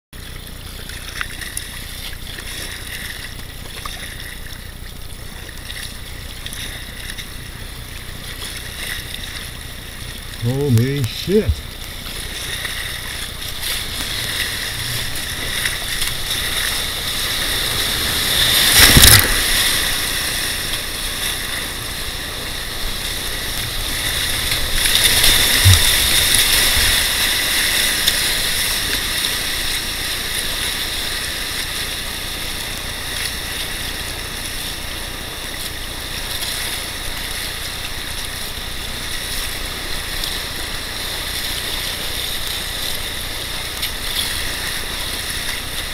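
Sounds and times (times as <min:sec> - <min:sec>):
whitewater rapids rushing: 0:04.1 - 0:45.9
loud water splash: 0:08.8 - 0:31.0.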